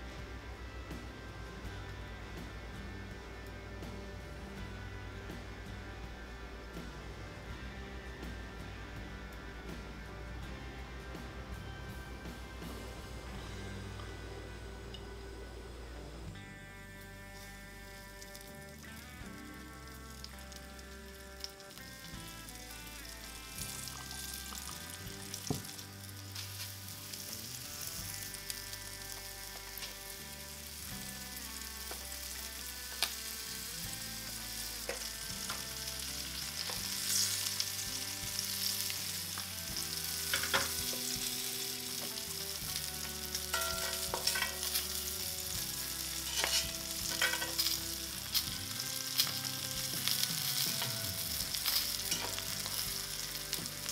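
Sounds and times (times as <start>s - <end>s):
fish sizzling in a skillet: 16.9s - 53.9s
oil pops and crackles: 17.4s - 27.4s, 34.2s - 53.9s.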